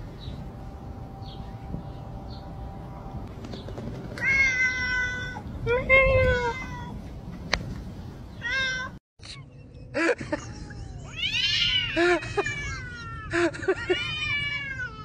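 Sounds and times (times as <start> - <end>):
cat meowing: 4.2 - 5.4
cats yowling: 4.2 - 5.4, 10.7 - 15.0.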